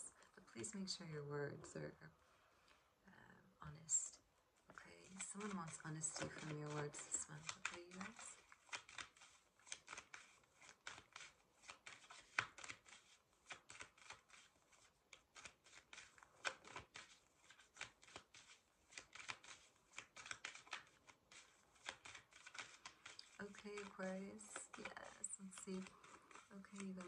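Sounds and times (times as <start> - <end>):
cards being shuffled: 5.0 - 27.0.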